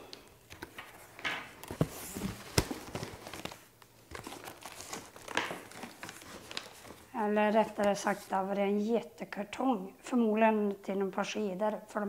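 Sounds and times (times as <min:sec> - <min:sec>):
cardboard flaps scraping: 0:00.7 - 0:08.2.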